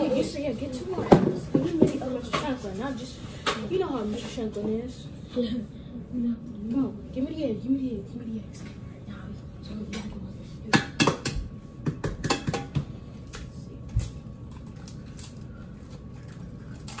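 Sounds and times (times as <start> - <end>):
eggs knocking on metal pot: 10.7 - 12.9.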